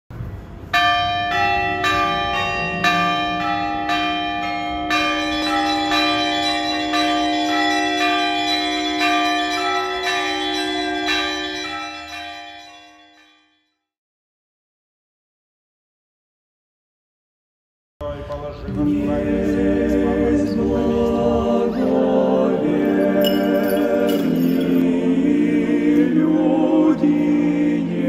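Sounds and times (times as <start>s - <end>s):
church bells ringing: 0.6s - 13.7s, 19.5s - 25.8s.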